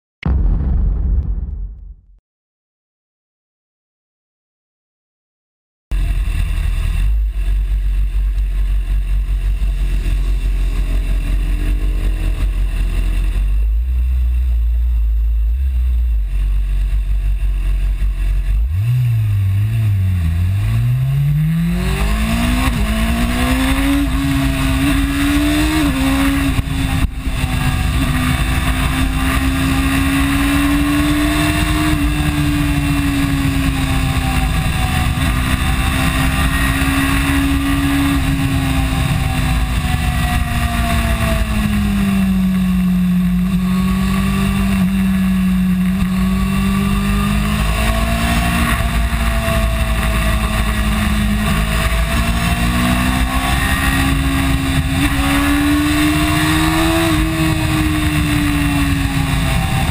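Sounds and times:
motorcycle engine revving: 0:05.9 - 0:59.9
wind rush: 0:21.4 - 0:59.9.

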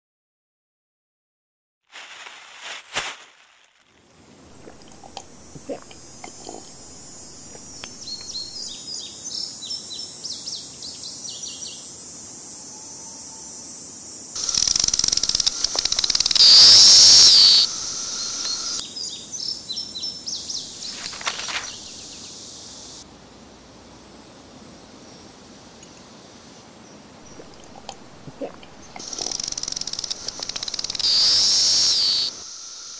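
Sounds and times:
plastic wrapping crinkling: 0:01.9 - 0:05.2
cicada buzzing: 0:04.3 - 0:08.9, 0:11.9 - 0:18.9, 0:20.4 - 0:23.0, 0:27.2 - 0:32.9
small birds chirping: 0:04.4 - 0:11.8, 0:14.4 - 0:23.0, 0:25.0 - 0:32.9.

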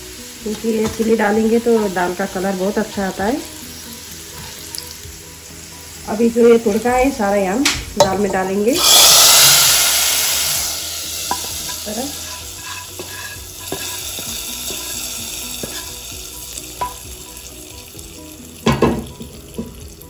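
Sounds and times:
hot oil sizzling: 0:00.0 - 0:20.0
metal clinks and scrapes: 0:11.6 - 0:14.0.

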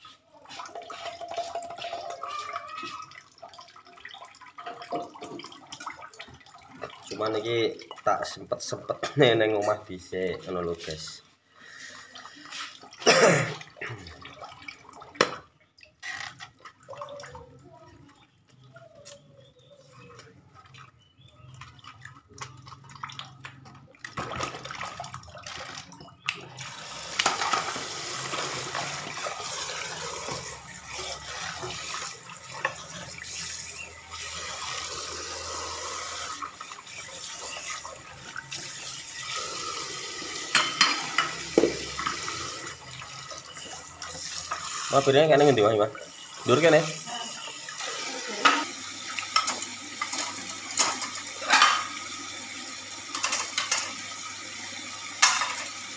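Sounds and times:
tap water running into sink: 0:00.1 - 0:11.1, 0:12.2 - 0:55.9
dishes clinking in sink: 0:07.8 - 0:09.9, 0:40.4 - 0:42.5, 0:47.8 - 0:52.0, 0:53.1 - 0:54.1, 0:55.1 - 0:55.8.

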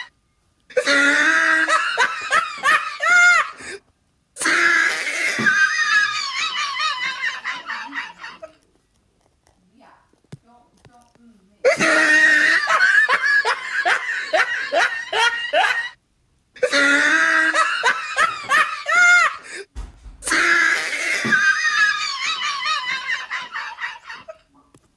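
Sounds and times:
person laughing hard: 0:00.7 - 0:03.8, 0:04.4 - 0:08.6, 0:11.7 - 0:16.0, 0:16.6 - 0:19.6, 0:20.2 - 0:24.5.

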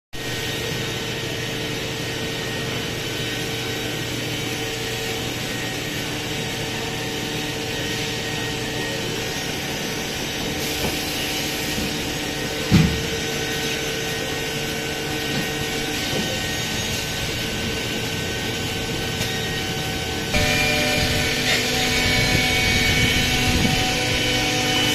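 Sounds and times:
machine hum: 0:11.8 - 0:24.9
constant tones: 0:20.3 - 0:24.9.

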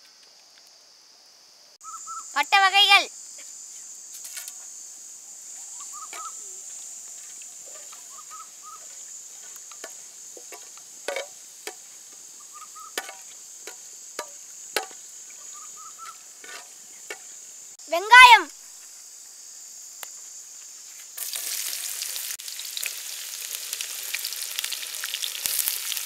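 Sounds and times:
crickets droning: 0:00.0 - 0:26.0
ladle scraping metal pot: 0:08.8 - 0:11.9, 0:12.9 - 0:15.0, 0:16.4 - 0:17.4.

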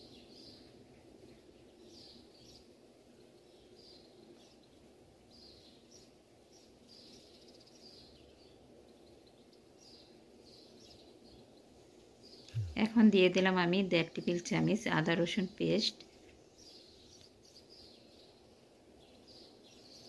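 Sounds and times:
faint bird-like chirps: 0:12.3 - 0:13.1.

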